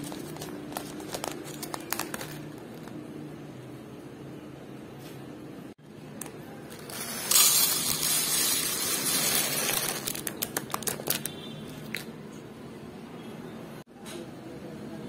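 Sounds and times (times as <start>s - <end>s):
rice grains pouring into tray: 6.8s - 10.1s.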